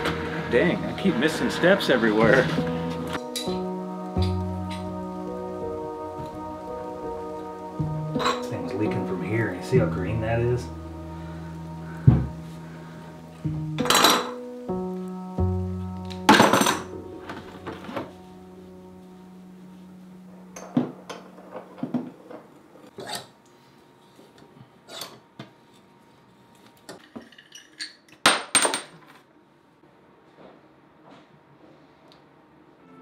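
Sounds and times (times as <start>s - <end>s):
background music with held notes: 0.0s - 23.8s, 32.7s - 33.0s.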